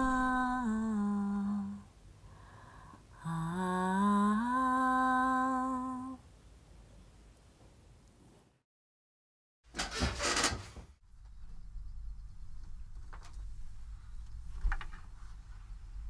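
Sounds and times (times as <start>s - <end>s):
woman humming: 0.0s - 1.9s, 3.1s - 6.2s.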